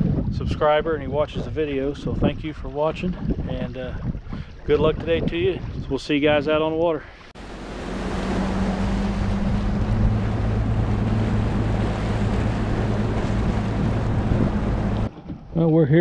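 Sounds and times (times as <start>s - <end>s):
wind and water rushing: 0.0s - 15.6s
outboard motor humming: 7.4s - 15.5s.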